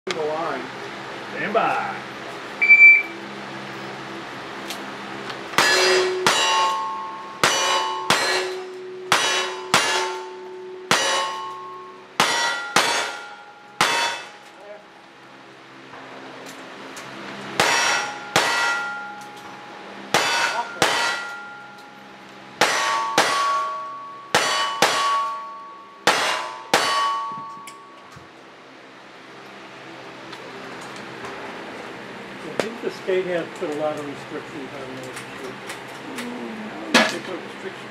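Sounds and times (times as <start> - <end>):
shot timer beep: 2.6 - 3.2
steel plate ringing: 5.6 - 14.9, 17.6 - 28.2.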